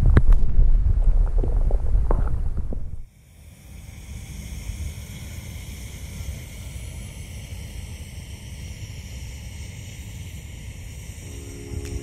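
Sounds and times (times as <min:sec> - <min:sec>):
wind on microphone: 0:00.0 - 0:03.1, 0:10.7 - 0:12.0
gas stove hissing: 0:02.9 - 0:12.0.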